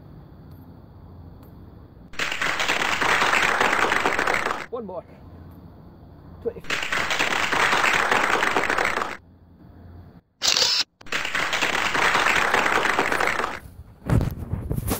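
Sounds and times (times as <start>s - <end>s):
applause: 2.2s - 4.7s, 6.6s - 9.2s, 11.0s - 13.6s.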